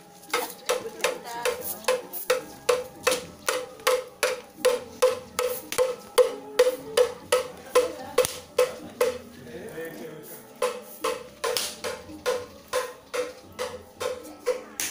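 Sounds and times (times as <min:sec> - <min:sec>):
stick knocking bamboo tube: 0:00.3 - 0:09.4, 0:10.6 - 0:14.9.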